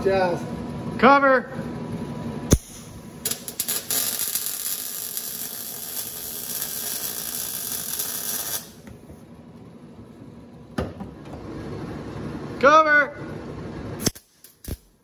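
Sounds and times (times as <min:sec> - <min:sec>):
welder arc sizzling: 0:02.5 - 0:08.8.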